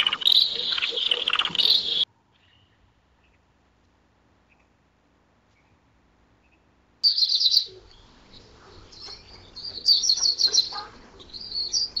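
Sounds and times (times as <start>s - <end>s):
canary chirping and trilling: 0.0s - 2.0s, 7.0s - 12.0s.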